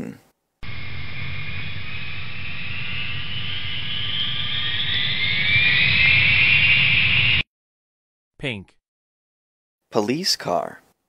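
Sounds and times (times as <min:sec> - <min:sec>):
jet engines rumbling and whining: 0:00.6 - 0:07.4.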